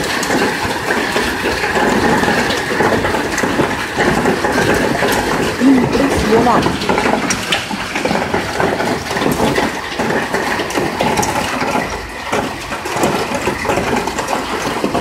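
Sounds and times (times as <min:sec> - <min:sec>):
rain hissing: 0:00.0 - 0:11.4
hailstones clicking: 0:00.0 - 0:15.0.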